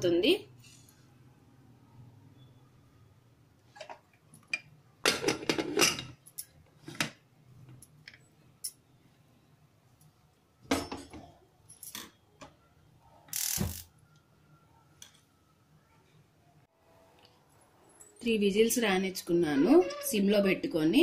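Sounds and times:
pot lid clattering and scraping: 5.1 - 6.2.

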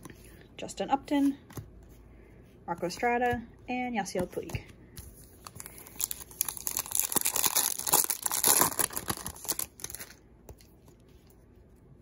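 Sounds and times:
plastic wrapper tearing and crinkling: 5.4 - 10.2.

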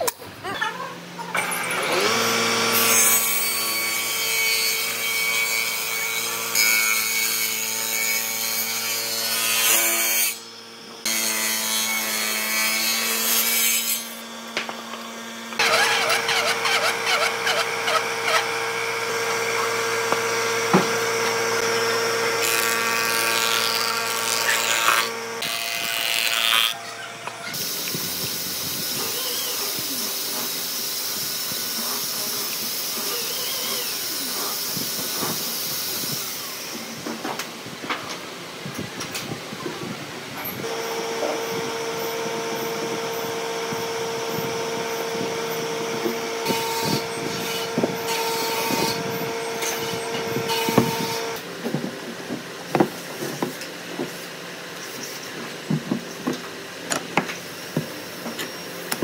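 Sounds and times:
table saw ripping wood: 1.4 - 10.4, 11.0 - 28.0, 40.6 - 51.4.

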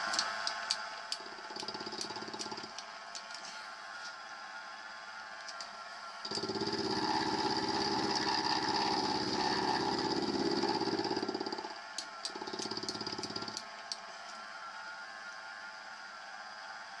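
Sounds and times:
milling machine humming: 0.0 - 2.8, 6.2 - 13.6
end mill cutting metal buzz: 6.3 - 11.6.

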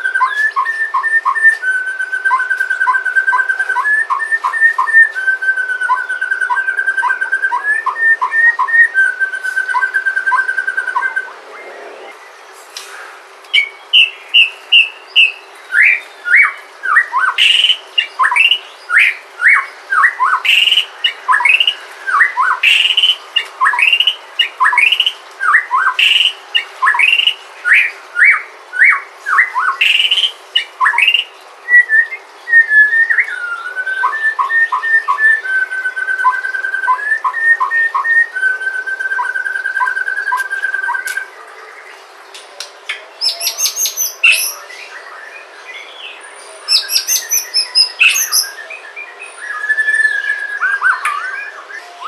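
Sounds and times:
bird singing whistled notes: 0.0 - 12.4, 13.5 - 41.3, 42.9 - 52.0
bird trilling: 43.2 - 44.6, 46.7 - 48.6.

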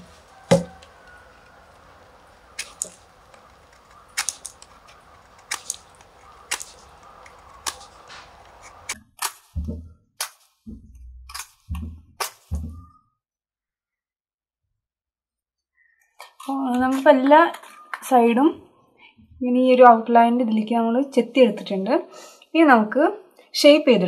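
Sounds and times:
dull thumps: 0.0 - 0.8, 9.6 - 10.0, 10.7 - 13.0
knife carving wood cracks: 0.4 - 1.0, 2.4 - 10.6.

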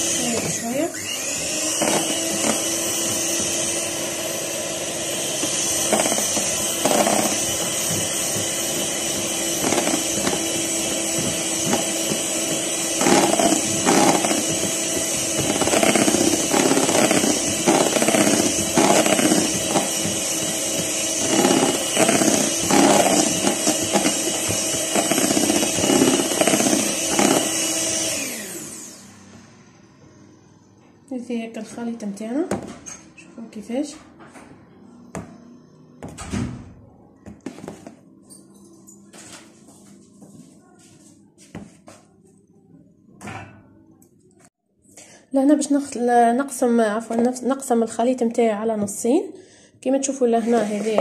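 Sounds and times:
electric hand mixer running: 0.0 - 29.7.

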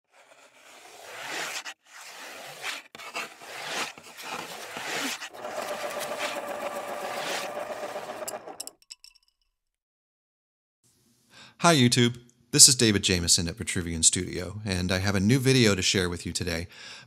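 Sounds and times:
pencil scratching on paper: 0.0 - 8.6.

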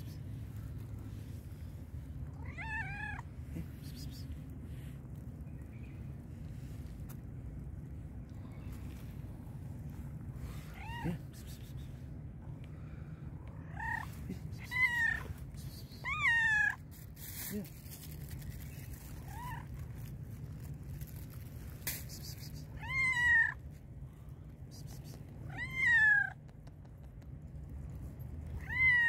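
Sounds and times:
cat meowing: 2.3 - 3.3, 22.8 - 23.6, 25.5 - 26.4, 28.6 - 29.0.

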